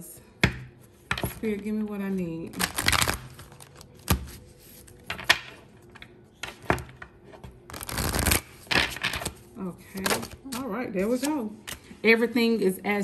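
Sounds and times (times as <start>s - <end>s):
cards rustling while shuffled: 2.5s - 5.1s, 7.7s - 12.0s.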